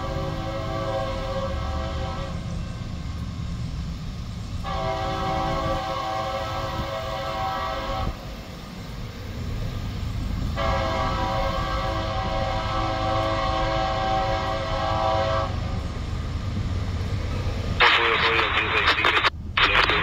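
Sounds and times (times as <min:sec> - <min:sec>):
locomotive air horn: 0:00.0 - 0:02.5, 0:04.6 - 0:08.2, 0:10.6 - 0:15.7
low rumble of train: 0:00.0 - 0:20.0
loud burst of noise: 0:17.8 - 0:20.0.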